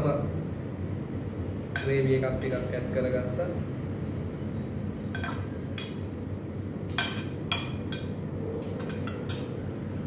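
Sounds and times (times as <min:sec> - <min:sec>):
low room hum: 0:00.0 - 0:10.0
metal spoons clinking on steel bowls: 0:06.9 - 0:09.6.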